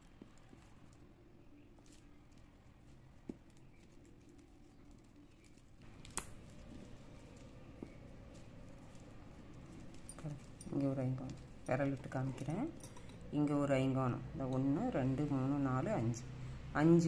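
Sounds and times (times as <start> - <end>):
plastic wire rustling and clicking: 1.6 - 13.1.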